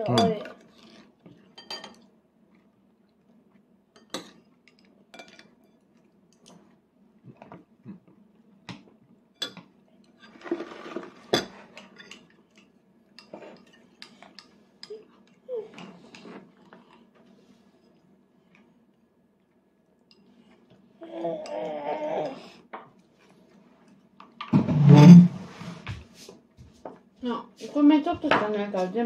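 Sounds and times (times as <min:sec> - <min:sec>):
spoon scraping plastic plate: 0:24.5 - 0:25.9.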